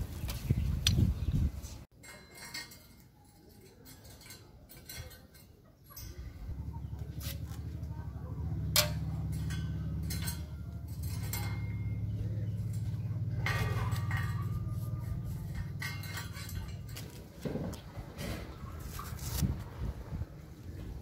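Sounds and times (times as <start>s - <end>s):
metal spike strips clinking: 2.0s - 7.8s, 8.5s - 17.3s
steady low droning hum: 6.0s - 21.0s.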